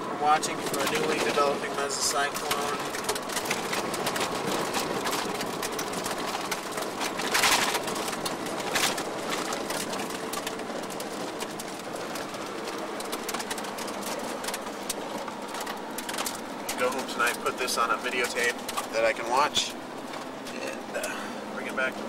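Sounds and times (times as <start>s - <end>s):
road and wind noise inside car: 0.0s - 22.0s
crackles: 0.3s - 22.0s.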